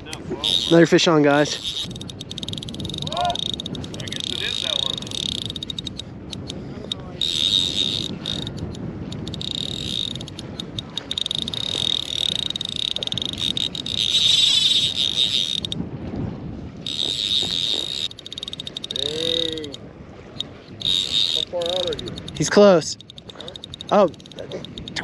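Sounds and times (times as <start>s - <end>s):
fly reel drag buzzing: 0.4s - 6.6s, 7.2s - 15.8s, 16.9s - 19.8s, 20.4s - 22.4s, 23.0s - 25.0s.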